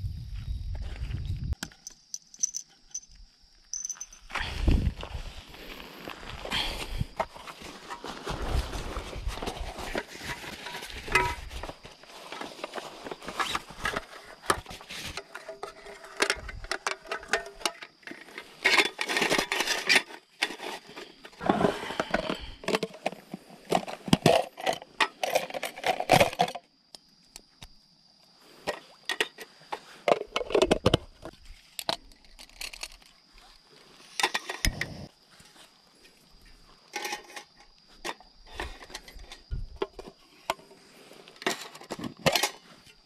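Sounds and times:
bag and fabric rustling: 0:07.3 - 0:15.2
metal table clattering on gravel: 0:34.2 - 0:35.0, 0:36.8 - 0:40.1.

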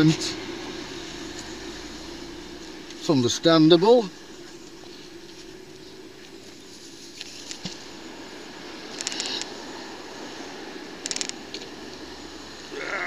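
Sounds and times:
faint outdoor background: 0:00.0 - 0:13.0.

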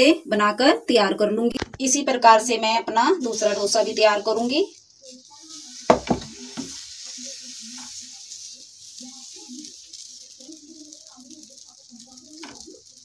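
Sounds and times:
batter sizzling on hot pan: 0:00.0 - 0:13.0
bowl knocking on pan: 0:05.9 - 0:06.8.

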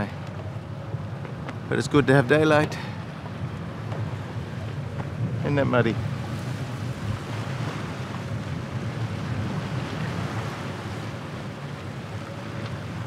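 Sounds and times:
rush of the sea: 0:00.0 - 0:13.0
wind noise on microphone: 0:03.2 - 0:13.0.

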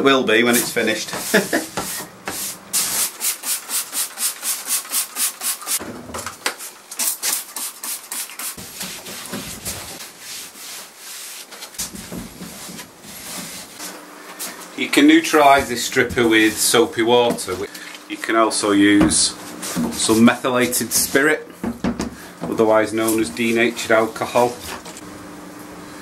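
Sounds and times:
cloth rubbing wooden surface: 0:01.1 - 0:02.6.

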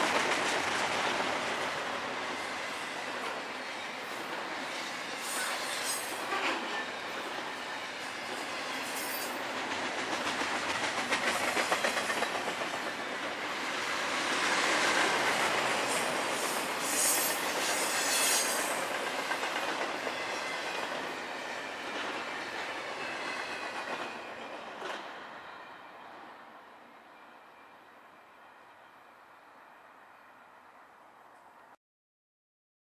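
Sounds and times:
train wheels rumbling on rails: 0:00.0 - 0:26.3.

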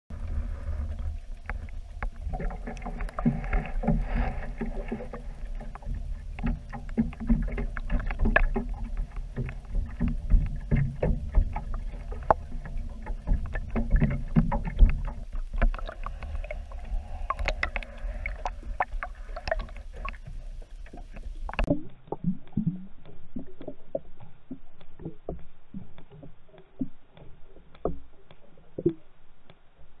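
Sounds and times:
underwater sloshing and rumble: 0:00.1 - 0:30.0
irregular clicks and knocks: 0:01.4 - 0:24.1.

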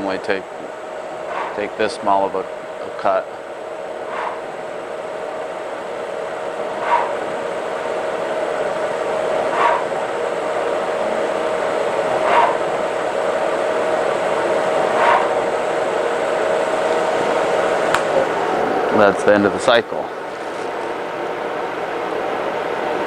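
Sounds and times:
lathe spindle whine: 0:00.0 - 0:23.0
cutting tool swish: 0:09.6 - 0:09.8, 0:15.0 - 0:15.3.

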